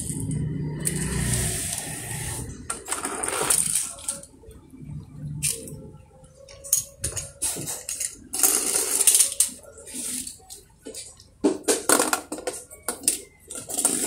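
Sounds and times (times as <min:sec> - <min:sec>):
toy cars clinking on concrete: 0:00.0 - 0:04.3, 0:06.5 - 0:14.0
toy cars rolling down a ramp: 0:00.0 - 0:04.3, 0:07.7 - 0:09.6, 0:11.8 - 0:14.0.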